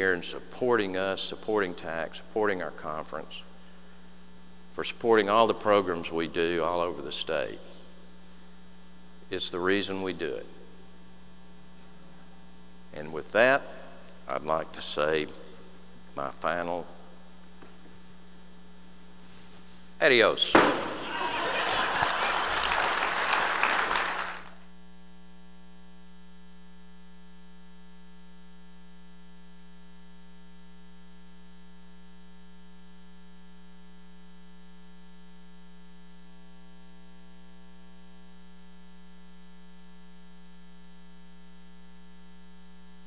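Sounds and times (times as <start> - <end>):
electrical mains hum: 0.0 - 43.0
audience applauding: 20.7 - 24.6.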